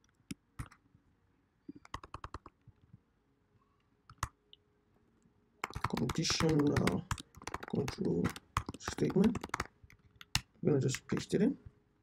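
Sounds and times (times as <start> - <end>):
faint computer keyboard typing: 0.0 - 0.8, 1.7 - 2.7, 4.1 - 4.4, 5.6 - 11.6.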